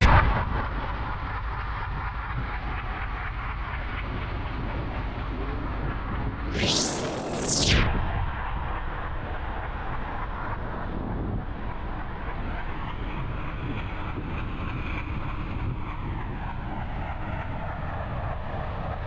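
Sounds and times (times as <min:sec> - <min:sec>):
rushing air: 0:06.4 - 0:09.1.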